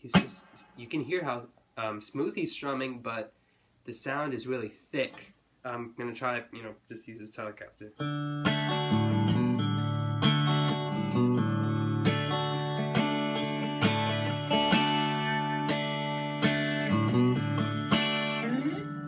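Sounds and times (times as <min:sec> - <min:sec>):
electric guitar strumming chords: 0:08.0 - 0:19.0.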